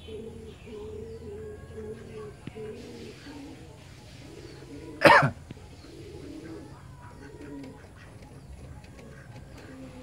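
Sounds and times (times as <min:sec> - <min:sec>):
ducks calling softly: 0:00.0 - 0:10.0.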